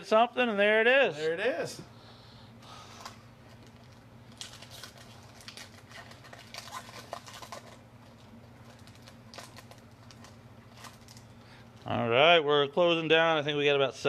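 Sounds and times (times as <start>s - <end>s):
trading cards rustling: 3.0s - 11.3s
wrappers crinkling: 3.5s - 11.9s.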